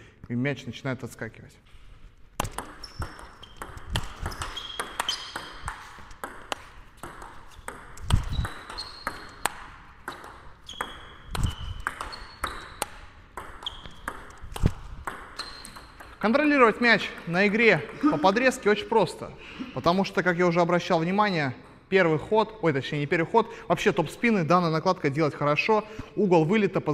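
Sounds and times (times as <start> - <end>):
table tennis ball clicks: 2.4 - 16.2.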